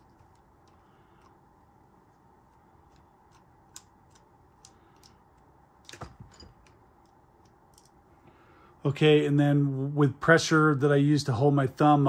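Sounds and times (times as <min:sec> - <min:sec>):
screwdriver and metal parts clicking: 0:02.8 - 0:08.0.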